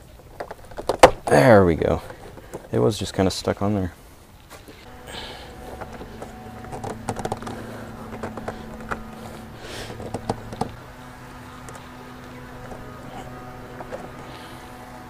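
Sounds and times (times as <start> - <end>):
faint low hum: 4.8 - 15.0.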